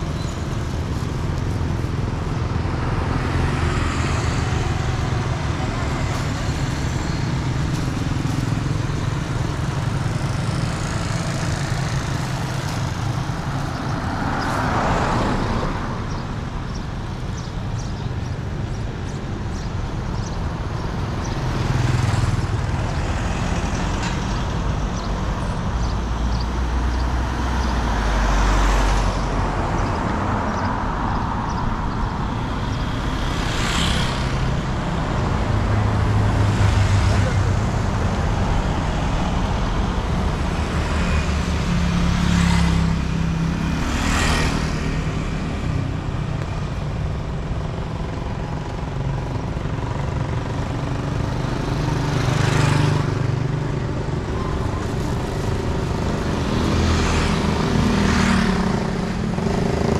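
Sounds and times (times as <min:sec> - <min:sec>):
low traffic rumble: 0:00.0 - 0:59.9
vehicles passing: 0:00.0 - 0:59.9.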